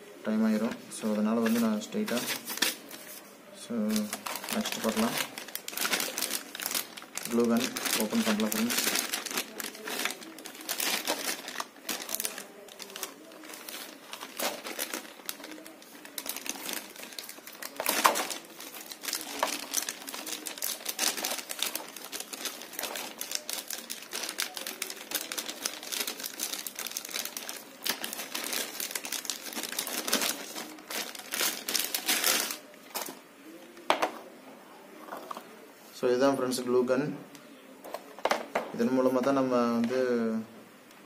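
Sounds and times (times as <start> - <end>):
plastic bag crinkling: 0.6 - 33.2.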